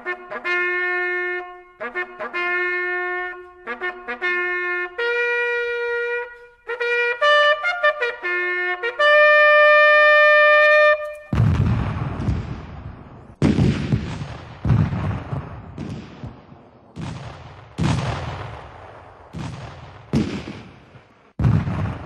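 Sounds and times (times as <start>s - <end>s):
gunshots with rumbling echo: 11.3s - 22.0s.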